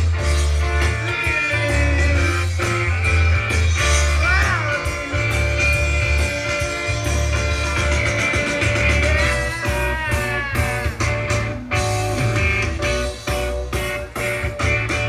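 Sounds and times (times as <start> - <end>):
electric bass: 0.0 - 15.0
electric guitar: 0.0 - 15.0.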